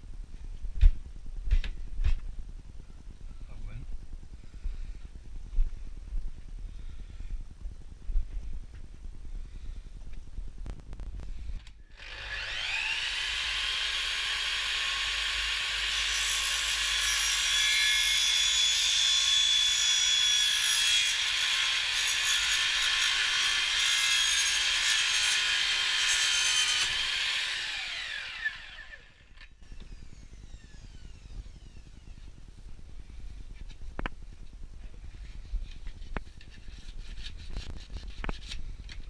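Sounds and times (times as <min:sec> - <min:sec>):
mitre saw cutting plastic pipe: 0:12.0 - 0:29.0.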